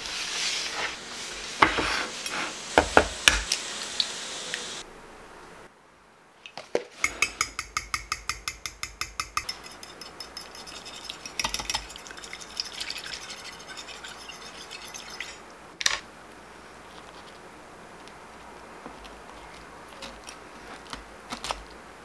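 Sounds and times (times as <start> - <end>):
fork beating eggs in a dish: 7.0 - 15.4.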